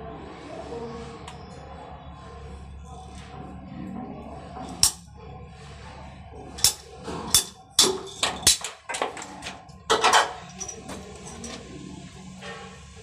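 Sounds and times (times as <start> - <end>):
pipe cutter ratchet clicks: 6.6 - 9.2.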